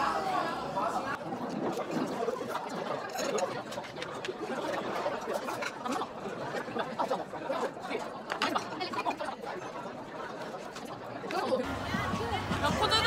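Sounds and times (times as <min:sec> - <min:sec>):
indistinct conversation: 0:00.0 - 0:13.0.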